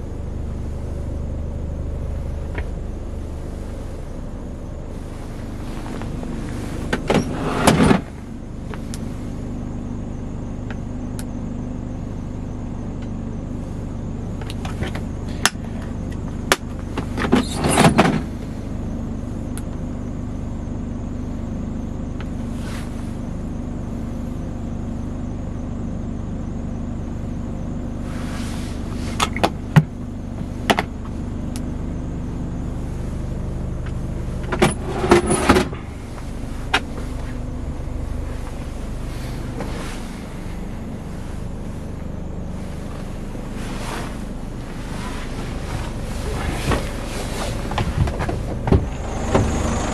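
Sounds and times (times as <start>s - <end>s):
diesel engine idling: 0.0s - 49.9s.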